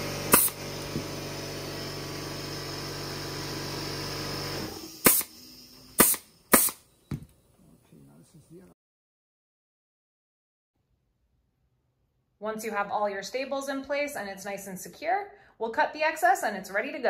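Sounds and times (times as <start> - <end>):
machine hum: 0.0 - 8.7
pneumatic stapler shots: 0.3 - 1.1, 4.6 - 6.9.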